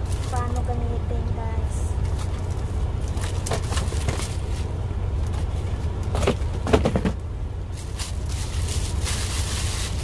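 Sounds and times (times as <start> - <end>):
low engine rumble: 0.0 - 10.0
plastic packaging crinkling: 7.8 - 10.0.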